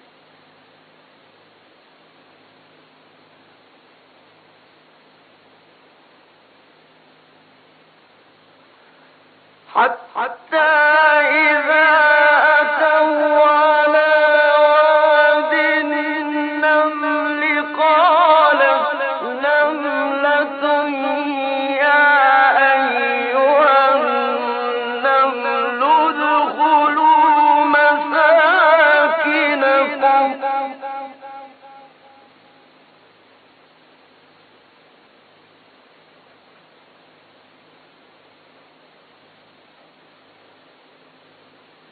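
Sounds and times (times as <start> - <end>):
steady hiss: 0.0 - 41.9
man chanting melodically: 9.6 - 32.3.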